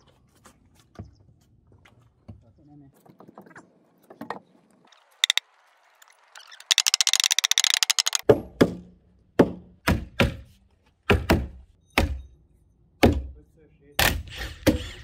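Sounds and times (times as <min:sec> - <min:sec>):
fast high clicking rattle: 0:05.2 - 0:05.4, 0:06.4 - 0:08.2.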